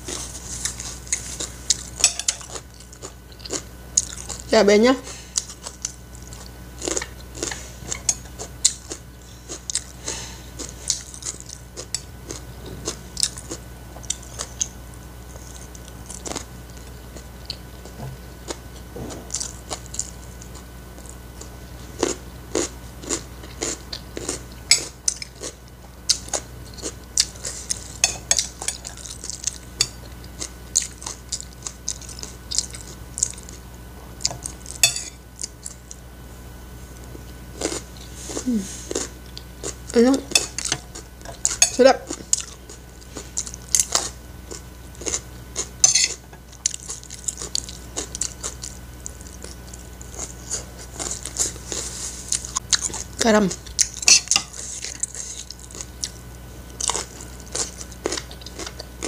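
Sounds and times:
chewing and crunching food: 0.0 - 59.0
cutlery clinking on ceramic plate: 2.0 - 2.5.

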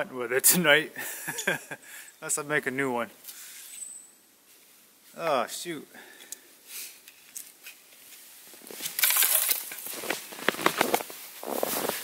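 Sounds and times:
rustling: 3.2 - 5.2, 6.6 - 12.0
footsteps crunching in snow: 9.6 - 12.0.

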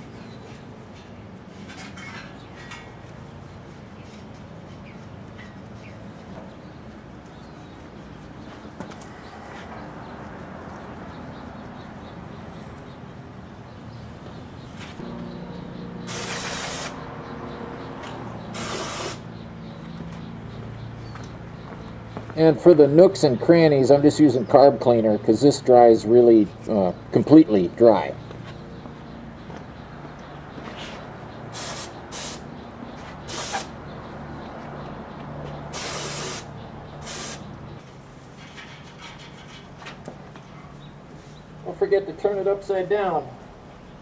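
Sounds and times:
aerosol can spraying: 16.1 - 17.0, 18.6 - 19.2, 31.6 - 32.4, 33.3 - 33.7, 35.8 - 37.4.

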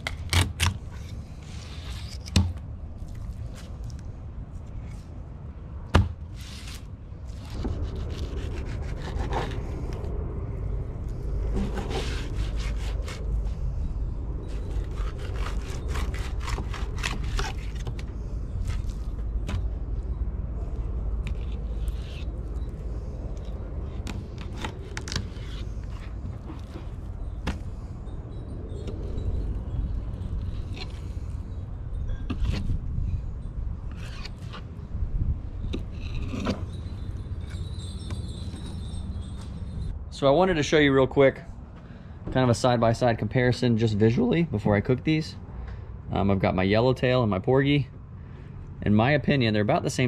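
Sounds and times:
low rumble: 7.0 - 34.0.

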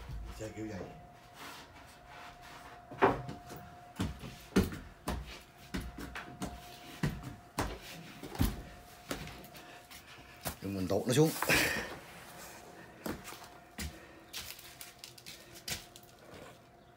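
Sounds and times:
footsteps climbing stairs: 2.9 - 12.0, 13.0 - 14.6.

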